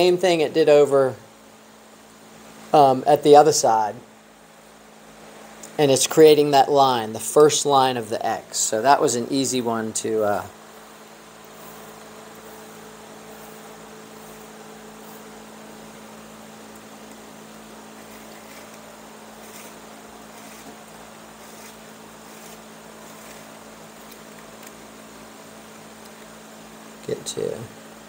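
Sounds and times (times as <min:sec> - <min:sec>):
low electrical hum: 0:00.0 - 0:28.0
cane strand rustling: 0:16.8 - 0:24.8.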